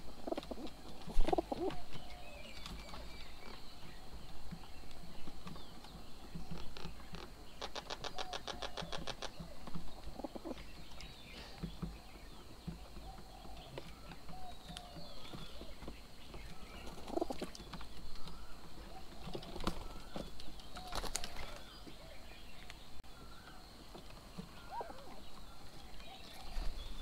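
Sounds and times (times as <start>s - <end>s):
bird wings flapping: 0.2s - 2.0s, 19.2s - 21.7s
short bird calls: 24.5s - 25.3s.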